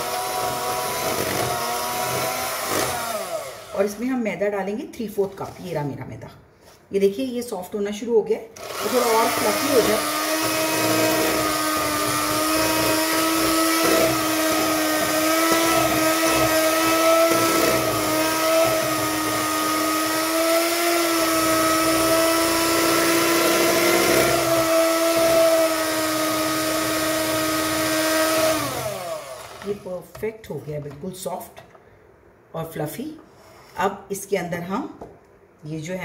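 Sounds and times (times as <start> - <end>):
electric hand mixer whining: 0.0 - 4.0, 8.6 - 29.8.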